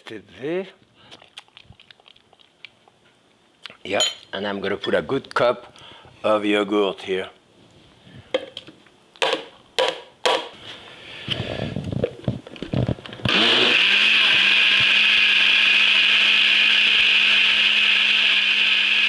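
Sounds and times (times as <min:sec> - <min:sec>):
blender motor whirring: 0:13.2 - 0:19.0.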